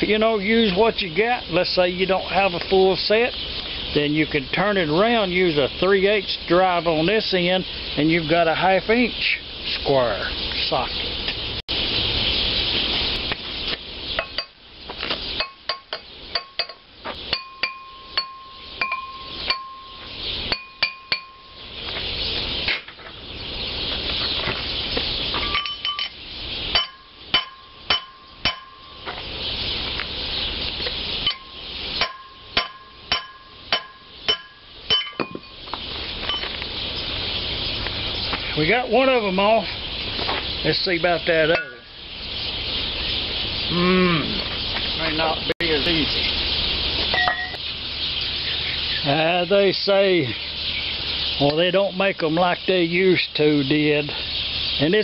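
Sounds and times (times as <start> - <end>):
hammer striking metal pulley: 26.7 - 28.8, 32.0 - 35.4.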